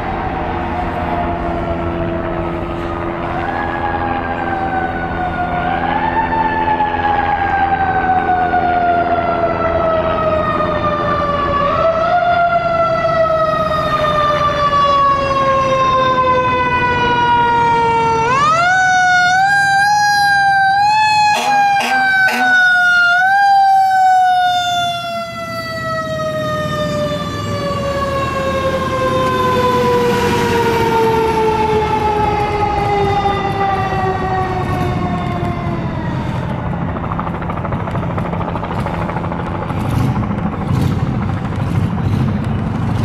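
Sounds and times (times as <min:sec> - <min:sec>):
mechanical siren winding down: 0:00.0 - 0:37.6
diesel engine running: 0:20.5 - 0:43.0.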